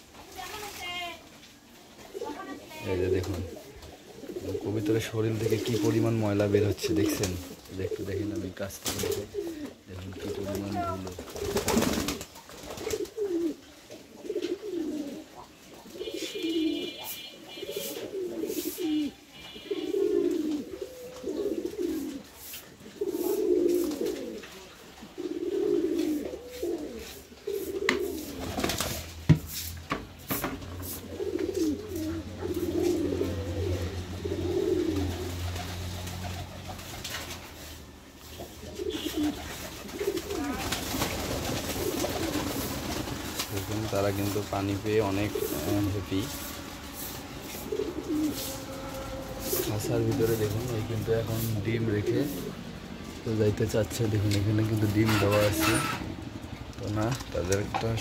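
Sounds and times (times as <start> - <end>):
pigeons cooing: 0.8 - 29.2, 30.2 - 58.0
wing flaps: 10.4 - 13.5, 38.8 - 46.7
birds splashing in water: 38.9 - 44.4.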